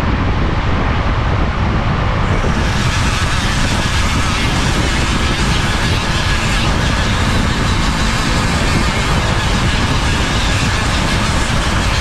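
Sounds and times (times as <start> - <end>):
rotary tool sanding wood: 2.4 - 12.0.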